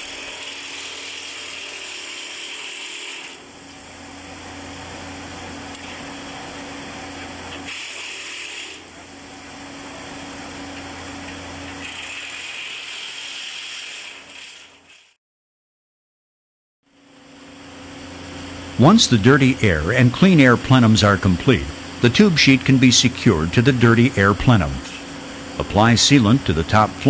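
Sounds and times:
power tool humming and hissing: 0:00.0 - 0:14.8.

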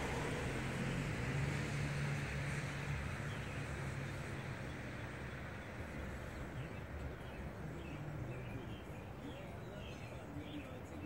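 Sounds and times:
rush of vehicle noise: 0:00.0 - 0:11.0
vehicle engine humming: 0:00.0 - 0:11.0
small birds chirping: 0:02.5 - 0:11.0.

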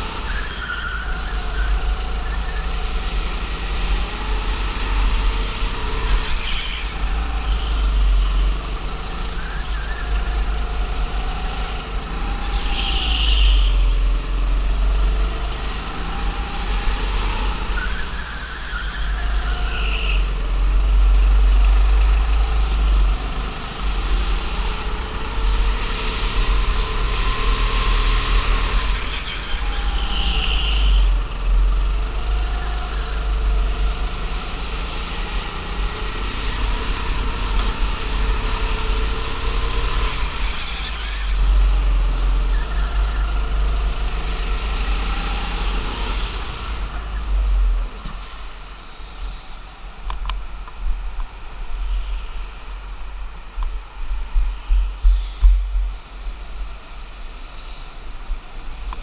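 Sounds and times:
tyre squeals: 0:00.0 - 0:03.2, 0:12.4 - 0:14.0, 0:17.6 - 0:20.5, 0:28.1 - 0:31.3, 0:36.7 - 0:41.8
go-kart engine revving: 0:00.0 - 0:50.4.

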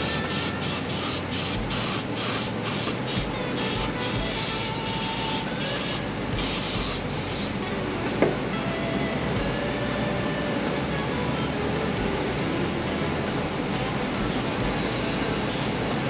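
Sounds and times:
aerosol spray hissing bursts: 0:00.0 - 0:07.6.

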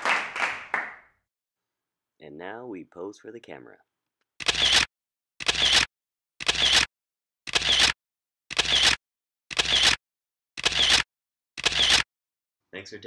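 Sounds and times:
camera shutter clicks: 0:04.4 - 0:06.9, 0:07.5 - 0:10.0, 0:10.6 - 0:11.0, 0:11.6 - 0:12.0.

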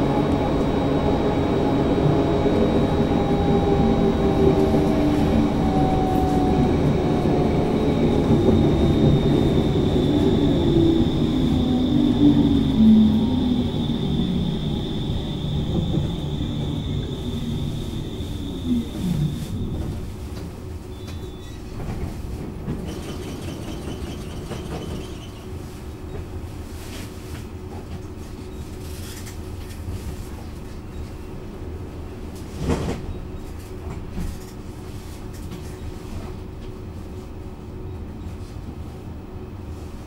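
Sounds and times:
steady hum: 0:00.0 - 0:20.3
faint high whine: 0:00.0 - 0:21.6
tram wheels rumbling on rail: 0:00.0 - 0:40.0.

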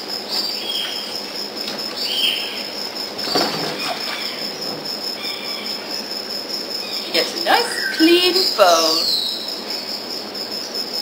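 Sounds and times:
water sloshing: 0:03.2 - 0:05.0.

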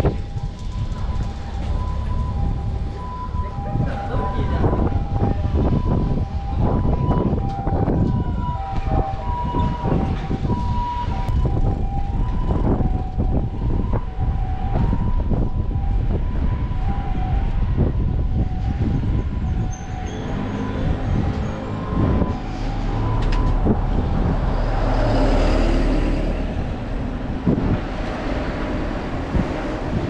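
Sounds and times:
traffic rumble: 0:00.0 - 0:30.0
vehicle passing close: 0:20.2 - 0:30.0.

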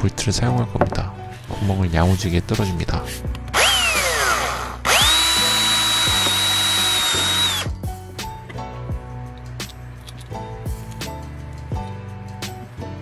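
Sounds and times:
electric drill whining: 0:03.5 - 0:07.7.

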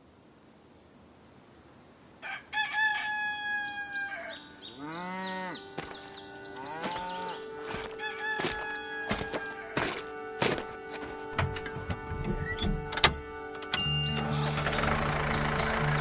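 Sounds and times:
rooster crowing: 0:02.2 - 0:05.4, 0:06.6 - 0:09.9
bird chirps: 0:03.7 - 0:08.0, 0:11.3 - 0:16.0
cow mooing: 0:04.8 - 0:05.6, 0:06.6 - 0:07.4.

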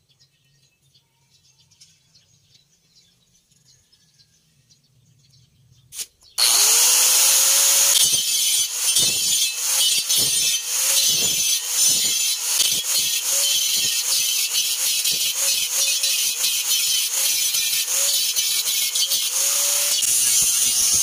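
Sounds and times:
grinder cutting steel: 0:06.0 - 0:21.0
angle grinder motor whine: 0:06.4 - 0:21.0.

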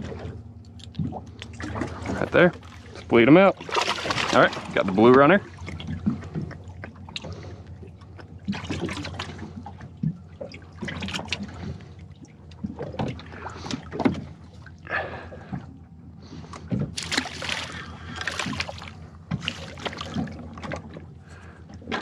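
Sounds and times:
water slapping against boat hull: 0:00.0 - 0:22.0.

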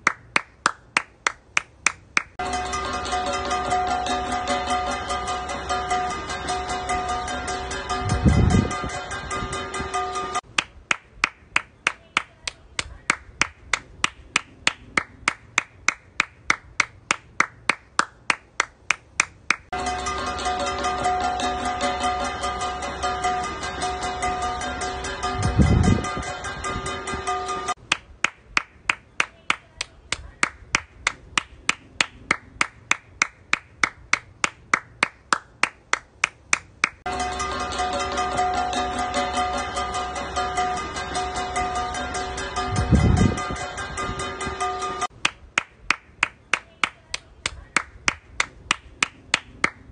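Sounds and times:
person clapping hands: 0:00.0 - 0:02.4, 0:10.5 - 0:19.7, 0:27.9 - 0:37.0, 0:45.2 - 0:49.8.

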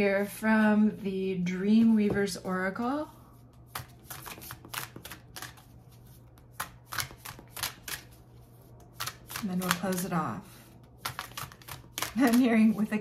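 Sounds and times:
cards being shuffled: 0:03.7 - 0:10.1, 0:10.9 - 0:12.9.

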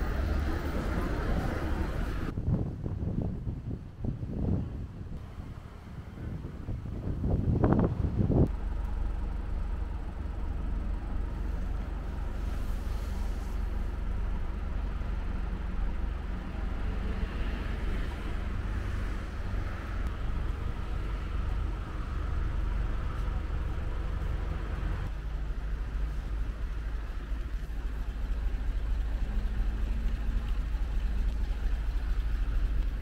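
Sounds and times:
road traffic rumble: 0:00.0 - 0:33.0
wind on microphone: 0:00.8 - 0:08.6.

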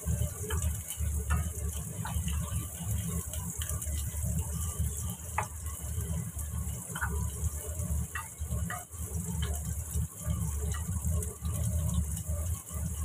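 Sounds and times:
shallots sizzling in oil: 0:00.0 - 0:13.0
spatula scraping and knocking pan: 0:00.1 - 0:03.3, 0:05.1 - 0:06.0, 0:06.8 - 0:09.8.

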